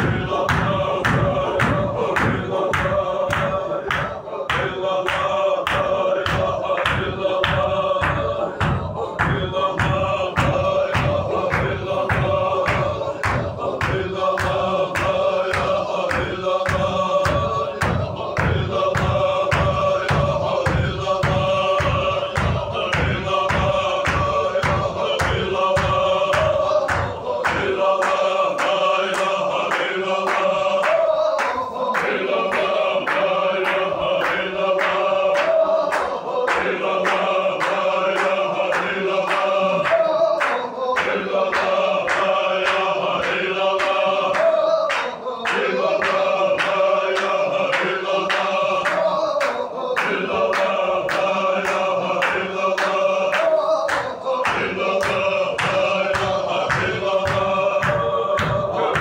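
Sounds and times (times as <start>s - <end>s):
men chanting together: 0.0s - 59.0s
sharp rhythmic beats: 0.0s - 59.0s
deep thuds: 6.4s - 14.1s.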